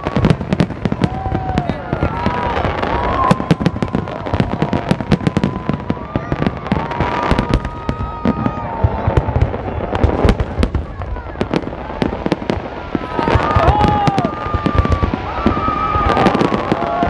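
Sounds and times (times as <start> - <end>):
fireworks bangs and crackles: 0.0 - 17.0
fireworks whistling: 0.0 - 17.0.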